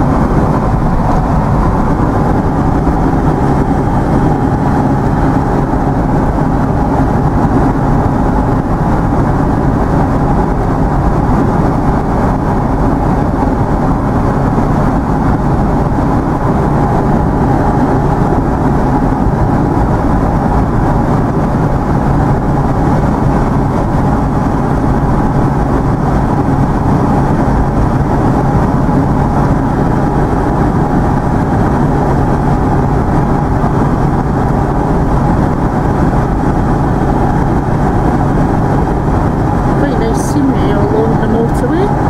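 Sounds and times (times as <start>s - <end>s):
constant low hum: 0.0s - 42.0s
vehicle engine and road noise: 0.0s - 42.0s.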